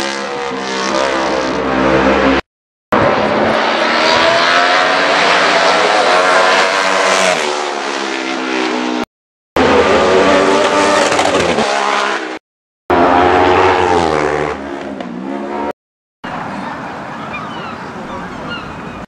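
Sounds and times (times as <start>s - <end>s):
racing motorcycles passing: 13.0s - 15.7s.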